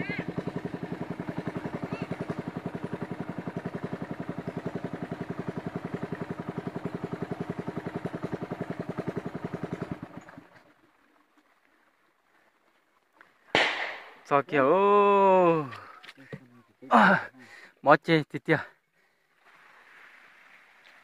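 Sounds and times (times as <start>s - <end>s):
boat engine pulsing: 0.0s - 12.4s.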